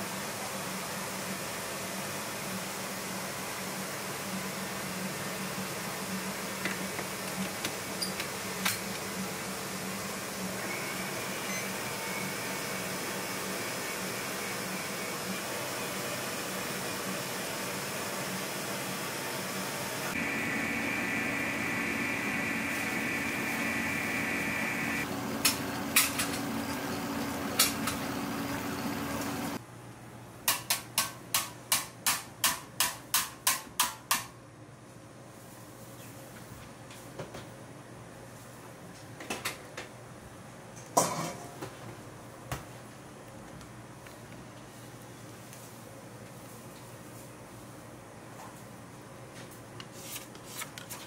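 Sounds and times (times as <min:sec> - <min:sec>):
higher mixer tone: 0:20.2 - 0:29.6
stand mixer running: 0:20.2 - 0:29.6.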